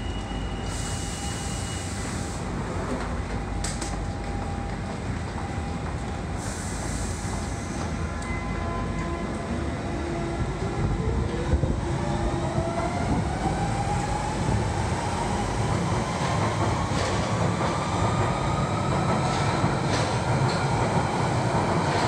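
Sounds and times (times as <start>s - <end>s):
train wheels rumbling: 8.9s - 22.0s.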